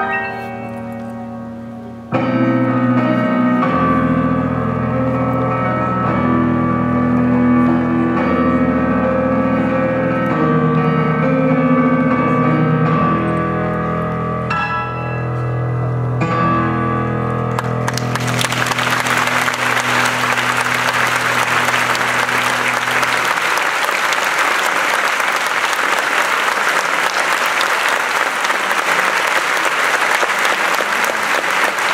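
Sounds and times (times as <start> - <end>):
grand piano chord ringing: 0.0 - 24.5
audience applauding: 17.5 - 31.9.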